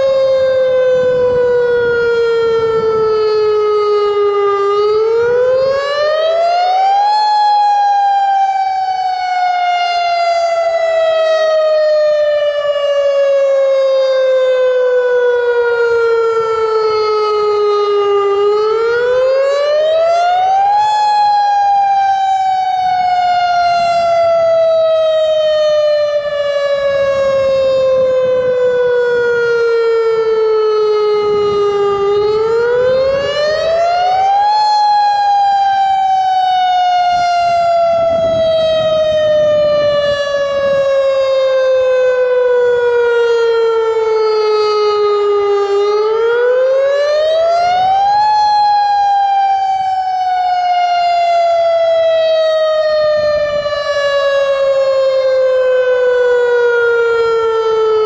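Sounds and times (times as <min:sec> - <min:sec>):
electronic siren wailing: 0:00.0 - 0:58.0.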